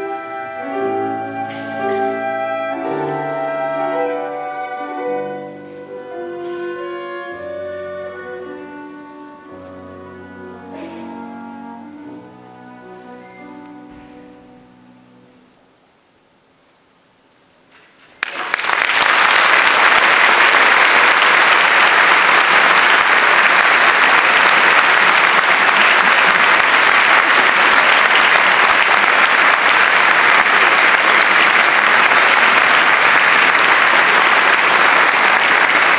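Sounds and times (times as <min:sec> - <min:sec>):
audience applause: 0:18.2 - 0:35.9.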